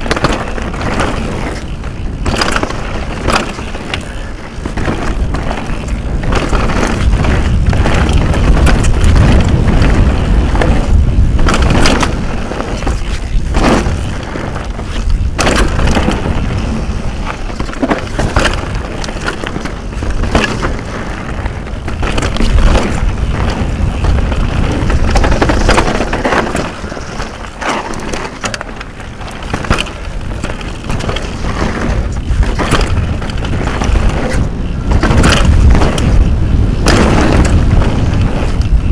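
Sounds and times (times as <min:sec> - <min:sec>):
bike clattering over bumps: 0:00.0 - 0:38.9
wind rumble on microphone: 0:00.0 - 0:38.9.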